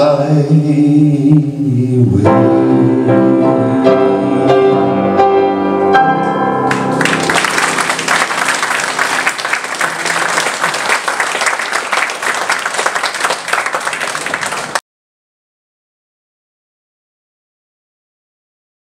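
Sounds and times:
piano chord ringing: 0:02.2 - 0:09.0
audience applauding: 0:06.7 - 0:14.8.

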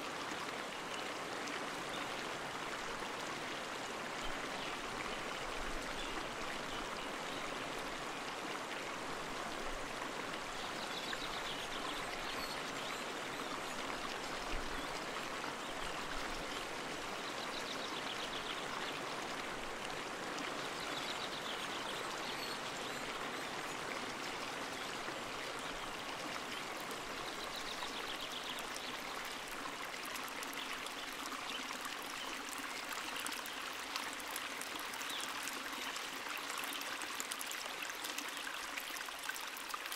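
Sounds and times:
flowing water rushing and splashing: 0:00.0 - 0:39.9.

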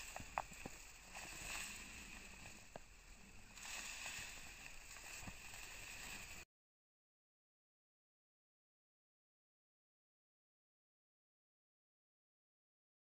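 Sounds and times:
light crackles: 0:00.0 - 0:06.4
steady outdoor hiss: 0:00.0 - 0:06.4.

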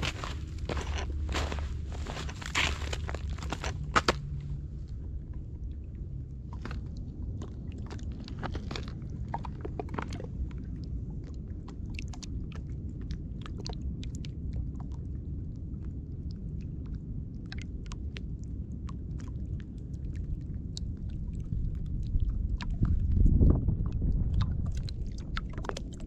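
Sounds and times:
sharp crunches: 0:00.0 - 0:04.3
small waves lapping on pebbles: 0:00.0 - 0:04.3
water crackling over stones: 0:00.0 - 0:04.3
wind rumble on microphone: 0:00.0 - 0:26.0.

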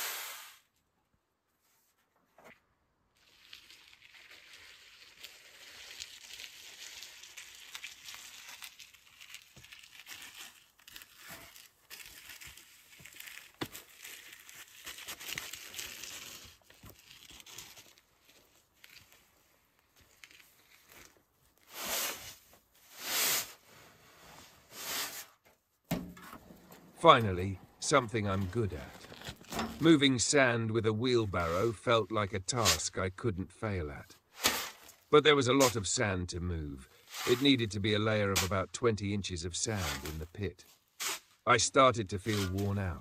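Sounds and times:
loud scrapes in sand: 0:00.0 - 0:00.6, 0:21.7 - 0:25.4, 0:36.9 - 0:38.6
sand scraping and sliding: 0:00.0 - 0:00.6, 0:20.8 - 0:25.4, 0:26.4 - 0:43.0.

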